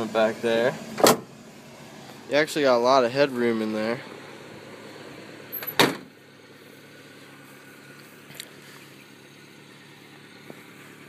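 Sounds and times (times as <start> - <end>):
truck engine idling: 0.0 - 11.0
truck door slamming: 0.9 - 1.3, 5.5 - 6.1.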